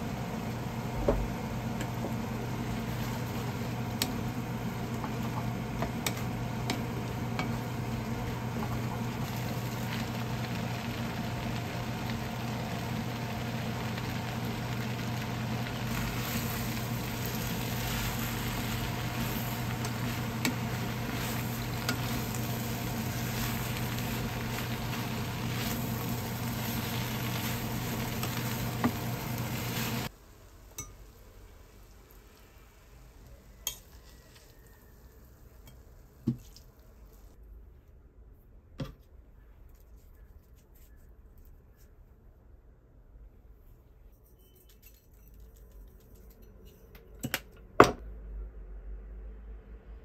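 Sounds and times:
food sizzling in a pan: 0.0 - 35.0.

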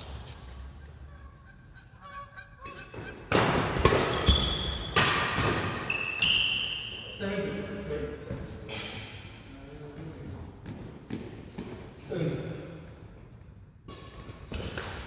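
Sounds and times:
court shoes squeaking: 0.0 - 7.2
racket striking shuttlecock: 2.6 - 6.0.

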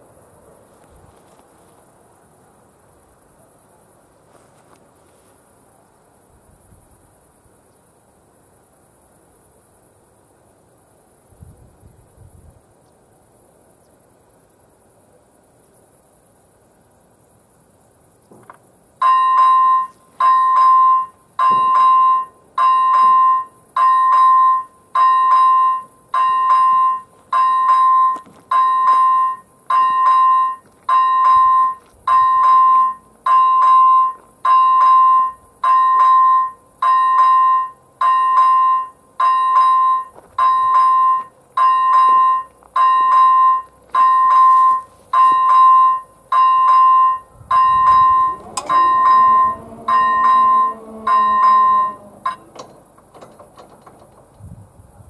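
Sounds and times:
level crossing bell dinging: 19.0 - 52.7.

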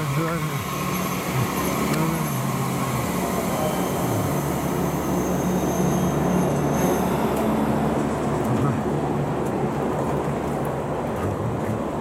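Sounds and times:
train wheels rumbling on rail: 0.0 - 12.0
low wavering motor tones: 0.2 - 6.3.

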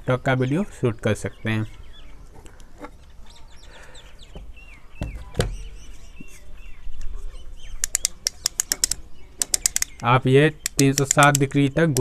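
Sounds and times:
faint birds chirping: 0.0 - 12.0
swivel joint clicking: 7.8 - 12.0.

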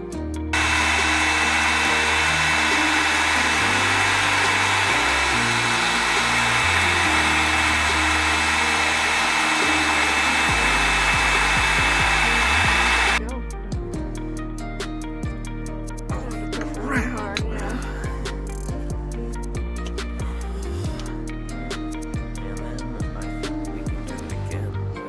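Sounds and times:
soft background music: 0.0 - 25.0
heat gun blowing with whine: 0.6 - 13.2.

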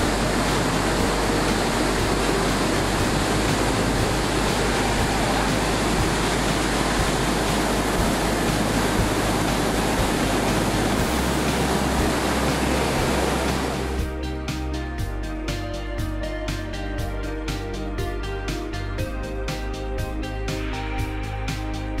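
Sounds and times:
waterfall rushing: 0.0 - 14.1.

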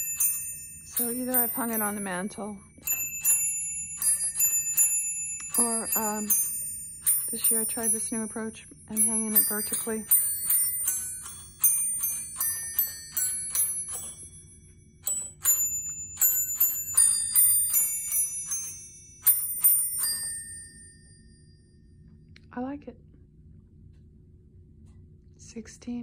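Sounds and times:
glockenspiel bells playing a tune: 0.0 - 21.6.

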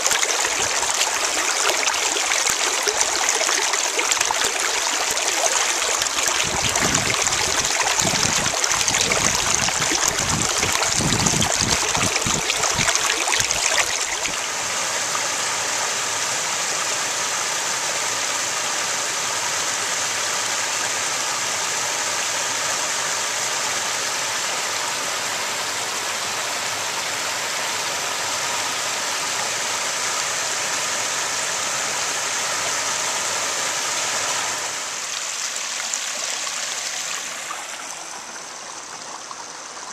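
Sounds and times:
creek water rushing over rocks: 0.0 - 39.9
low rumbling on microphone: 6.3 - 14.4.

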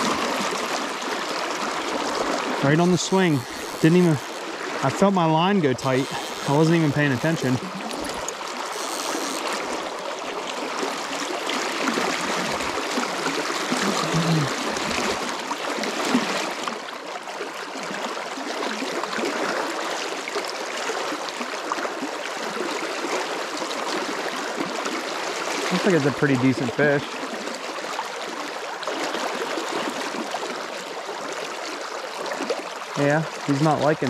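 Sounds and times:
creek rushing over riffles: 0.0 - 9.8.

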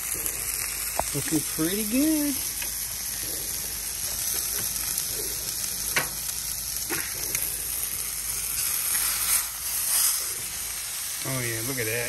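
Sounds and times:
fat popping: 0.0 - 1.2, 2.5 - 7.6
meat sizzling on a griddle: 0.0 - 12.0.

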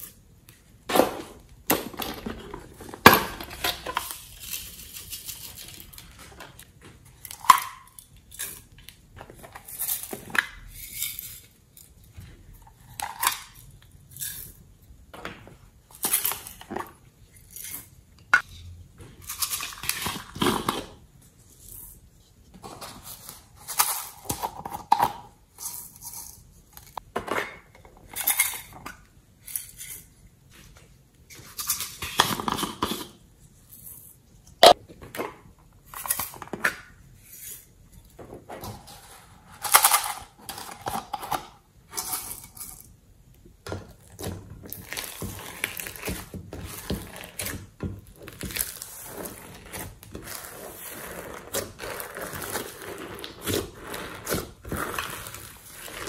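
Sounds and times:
slime squishing and crackling: 44.0 - 56.0.

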